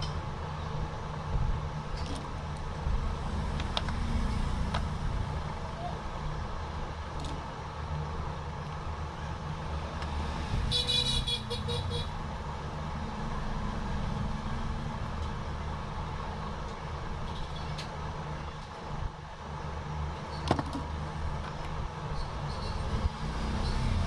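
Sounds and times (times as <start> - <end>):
pulsing vehicle horn: 10.7 - 12.2.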